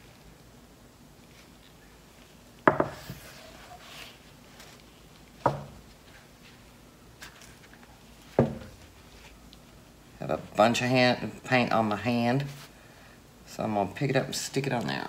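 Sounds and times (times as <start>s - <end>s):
faint handling rustle: 0.0s - 9.9s
wooden frame knocking on table: 2.7s - 3.0s, 8.4s - 8.7s.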